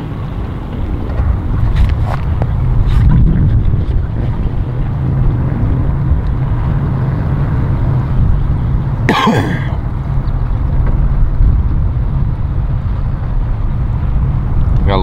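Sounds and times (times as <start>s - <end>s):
low rumble of wind and engines: 0.0s - 15.0s
person clearing throat: 9.1s - 9.8s.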